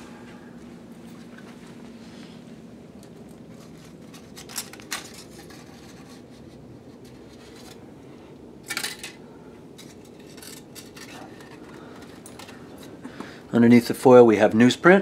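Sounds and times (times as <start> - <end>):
aluminium foil crinkling: 3.2 - 7.8, 9.8 - 13.0.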